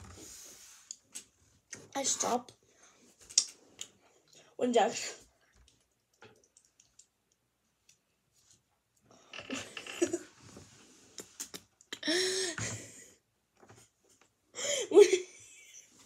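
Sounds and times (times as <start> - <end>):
young person laughing: 9.5 - 10.3.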